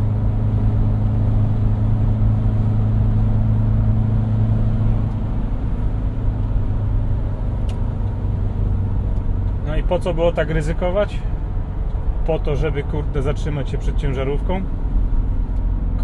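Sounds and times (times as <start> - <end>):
road noise: 0.0 - 16.0
van engine droning: 0.0 - 16.0.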